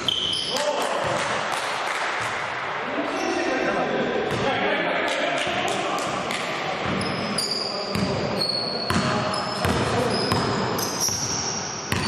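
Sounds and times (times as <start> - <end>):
sneakers squeaking on court: 0.0 - 0.6, 6.8 - 12.0
basketball bouncing on gym floor: 8.9 - 12.0.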